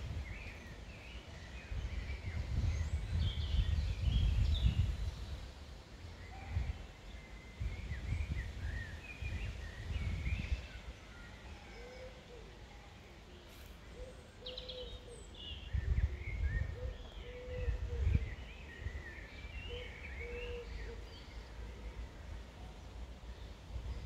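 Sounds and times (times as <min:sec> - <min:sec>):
wind rumbling on microphone: 0:00.0 - 0:11.0, 0:15.0 - 0:20.4.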